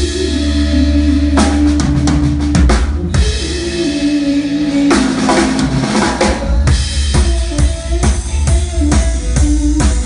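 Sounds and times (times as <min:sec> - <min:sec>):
bass drum and snare beat: 0:01.3 - 0:03.6.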